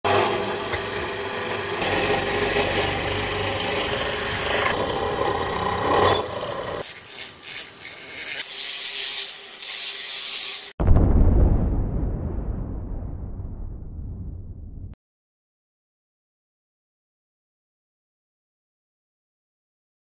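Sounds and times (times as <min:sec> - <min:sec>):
rotary tool grinding wood: 0:00.1 - 0:10.8.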